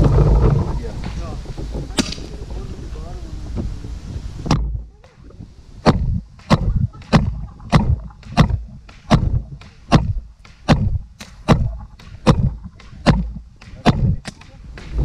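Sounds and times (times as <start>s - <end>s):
paintball marker firing: 5.8s - 15.0s.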